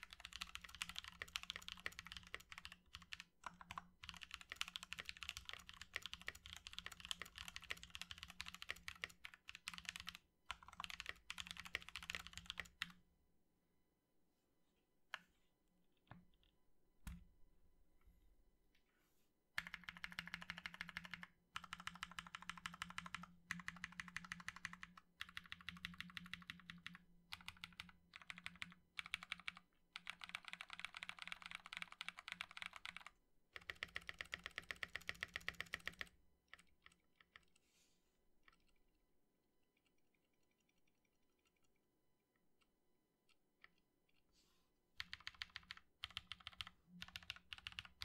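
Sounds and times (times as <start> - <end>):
mechanical keyboard typing: 0.0 - 13.0, 19.6 - 37.6, 45.0 - 48.0.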